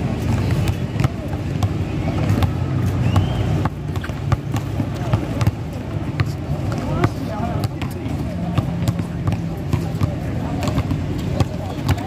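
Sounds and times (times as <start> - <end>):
distant voices: 0.0 - 12.0
basketball bouncing on concrete: 0.1 - 12.0
shoe squeak: 2.0 - 4.5.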